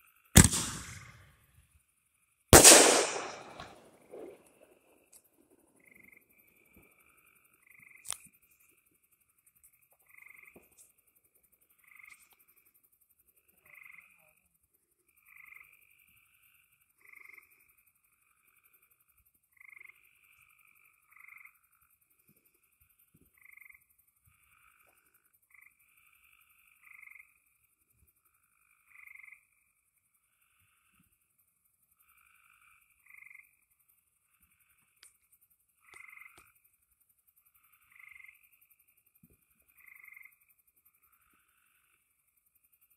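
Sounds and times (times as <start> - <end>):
frogs calling: 5.8 - 14.5, 15.1 - 22.0, 22.6 - 30.9, 31.7 - 36.8, 37.4 - 39.0, 39.6 - 42.8.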